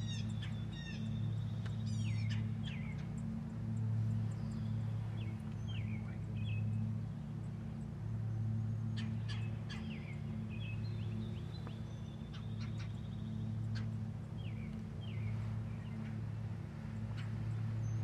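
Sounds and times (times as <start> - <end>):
small birds chirping: 0.0 - 18.0
steady low hum: 0.0 - 18.0.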